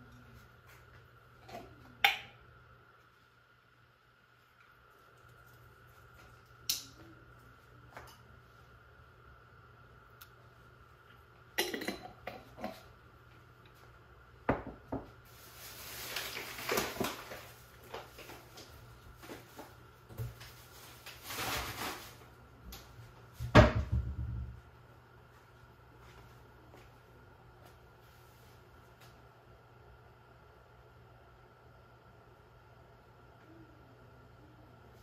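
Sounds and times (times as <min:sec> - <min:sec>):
rustling: 0:15.3 - 0:22.3.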